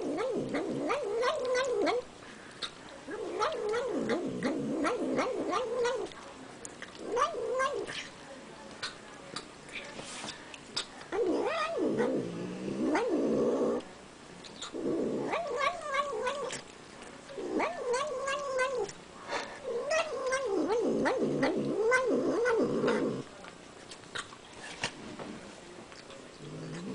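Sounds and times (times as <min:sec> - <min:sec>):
cat making wavering vocal sounds: 0:00.0 - 0:02.1, 0:03.1 - 0:06.1, 0:07.0 - 0:08.1, 0:11.1 - 0:13.8, 0:14.6 - 0:16.7, 0:17.4 - 0:19.0, 0:19.6 - 0:23.3.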